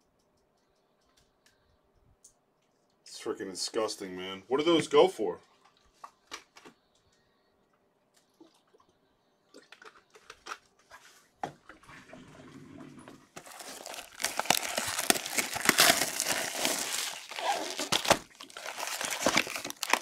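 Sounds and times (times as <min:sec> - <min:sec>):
plastic shrink wrap crinkling: 0:13.4 - 0:20.0.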